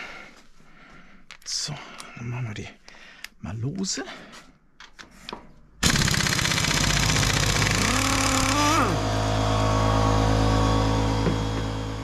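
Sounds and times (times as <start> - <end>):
pneumatic impact wrench hammering: 5.8 - 9.4, 11.0 - 12.0
steady machine hum: 5.8 - 12.0.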